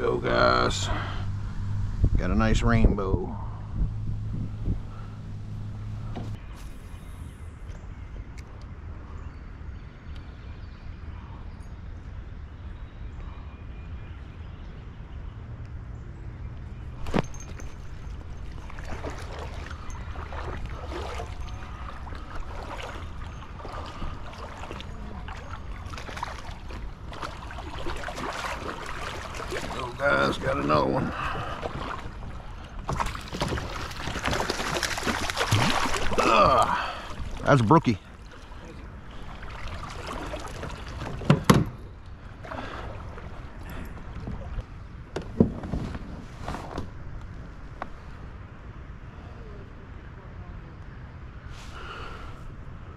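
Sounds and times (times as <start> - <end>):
low wind rumble on microphone: 0.0 - 37.4
creek water flowing: 17.3 - 45.0.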